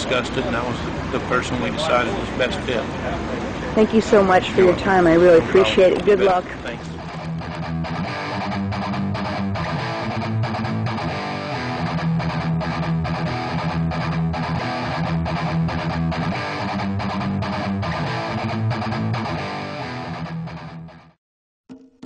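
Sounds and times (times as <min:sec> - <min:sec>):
strummed guitar music: 0:04.3 - 0:21.1.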